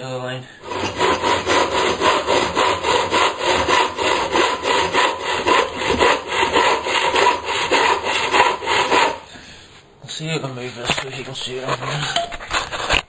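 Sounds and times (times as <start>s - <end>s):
hand saw cutting wood: 0.6s - 9.3s.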